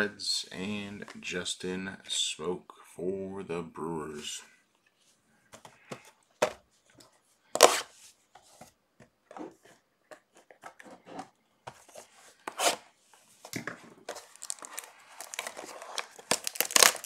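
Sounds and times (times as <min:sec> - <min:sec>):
cards tapping and rustling: 0:13.4 - 0:17.0.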